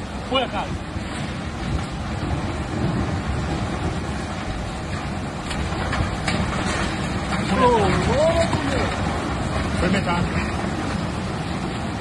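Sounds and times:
river floodwater rushing: 0.0 - 12.0.

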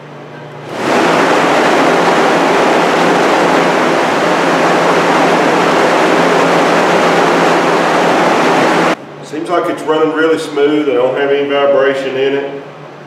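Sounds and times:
exhaust fan air rush: 0.0 - 13.0
low motor hum: 0.6 - 9.2.

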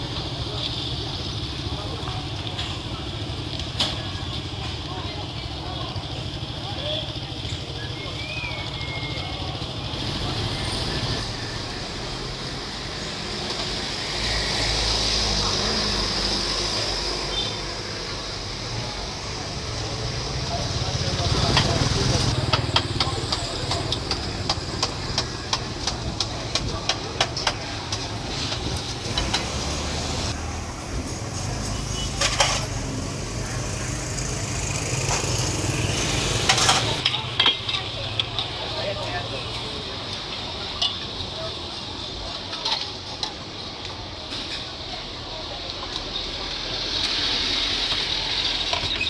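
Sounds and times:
street background noise: 0.0 - 49.0
vehicle engine rumble passing: 8.2 - 37.2
utensils clinking on pots: 31.6 - 32.8, 36.4 - 38.6.

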